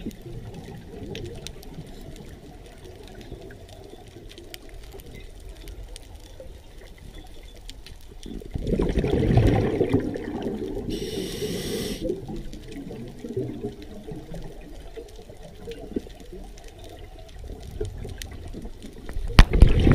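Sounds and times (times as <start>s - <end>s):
underwater air bubbles rushing: 8.3s - 19.9s
regulator inhale hiss: 10.8s - 12.2s
clicks in water: 19.1s - 19.9s.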